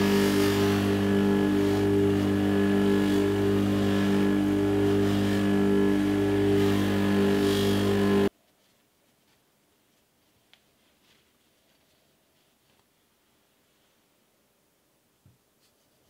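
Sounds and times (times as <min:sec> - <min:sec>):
bench grinder motor hum: 0:00.0 - 0:08.3
metal hissing against abrasive wheel: 0:00.0 - 0:08.3.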